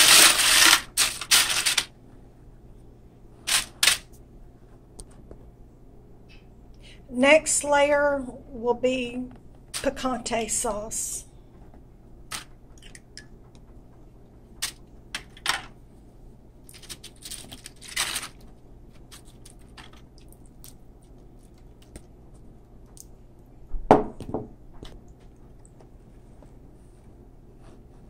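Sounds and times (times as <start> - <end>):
spoon scraping in foil pan: 0.0 - 1.9.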